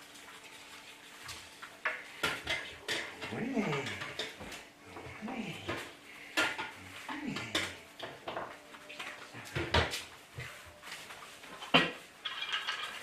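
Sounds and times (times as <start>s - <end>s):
faint voice-like sounds: 2.9s - 7.9s.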